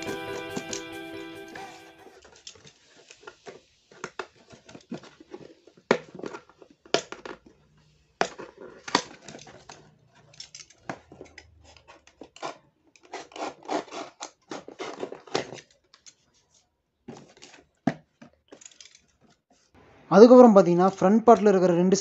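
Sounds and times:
utility knife cutting cardboard: 12.3 - 15.6.

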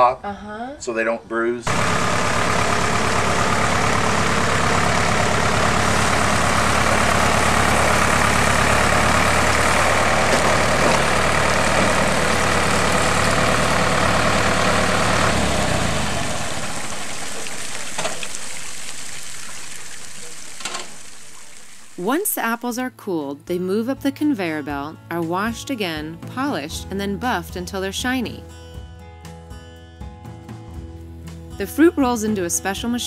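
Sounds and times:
tractor engine running: 1.7 - 22.7.

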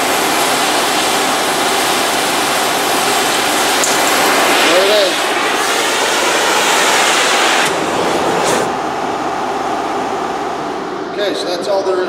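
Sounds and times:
gas torch flame hissing: 0.0 - 8.8.

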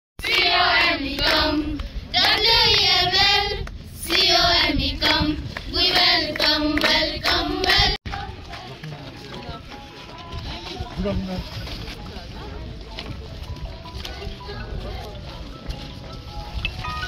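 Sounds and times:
hands clapping: 0.2 - 2.9, 5.5 - 9.4
girls singing together: 0.2 - 8.8.

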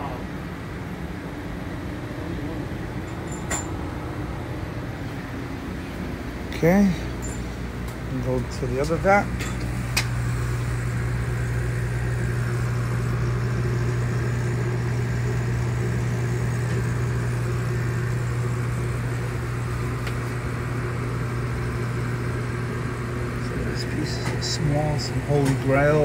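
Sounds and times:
aquarium equipment humming and hissing: 0.0 - 26.0.

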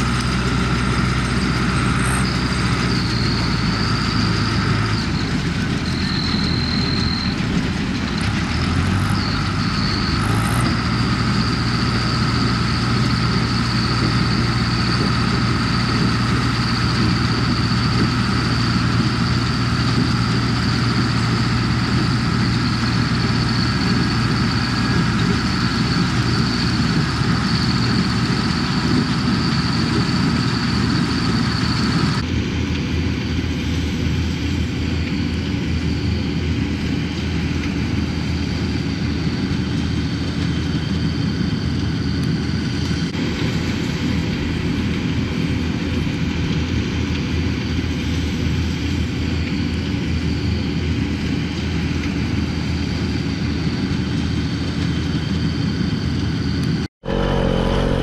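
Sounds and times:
old tractor engine running: 0.0 - 58.0.

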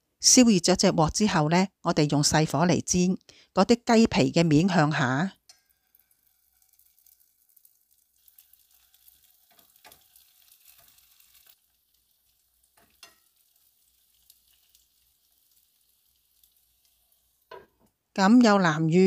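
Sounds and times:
chicken frying in oil: 5.5 - 17.9
tongs knocking on pan: 12.8 - 13.4, 17.5 - 17.9.

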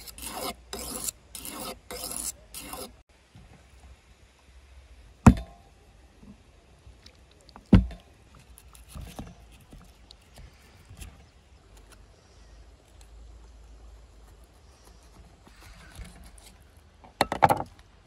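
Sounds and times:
hand saw cutting: 0.0 - 3.0.

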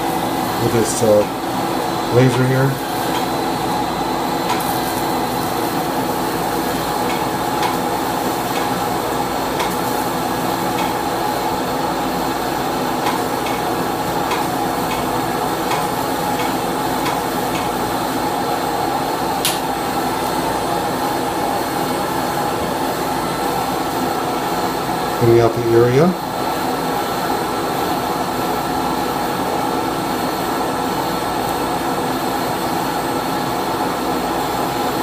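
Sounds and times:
suction vacuum humming: 0.0 - 25.6
sharp click: 19.4 - 19.7.

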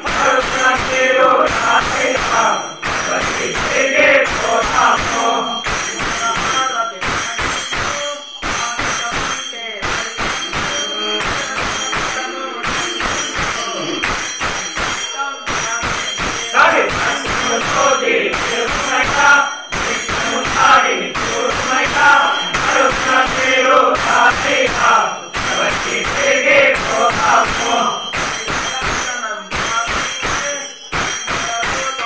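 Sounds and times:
men singing together: 0.0 - 7.2, 15.9 - 28.4
hand cymbals clashing: 0.0 - 32.0.

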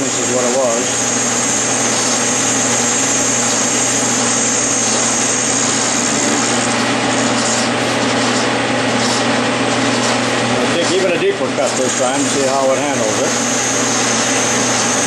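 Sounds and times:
lathe tool cutting hiss: 0.0 - 7.9, 11.6 - 15.0
metal lathe humming: 0.0 - 15.0.

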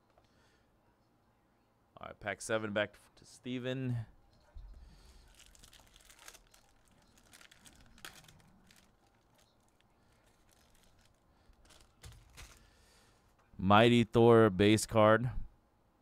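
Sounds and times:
foil wrapper crinkling: 5.0 - 12.8.

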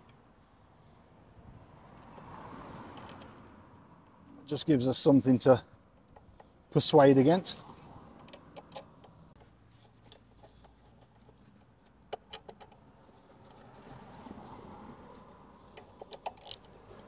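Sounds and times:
road traffic hum: 0.0 - 17.0
metal tool clicks and clinks: 8.2 - 10.8, 15.7 - 16.8.

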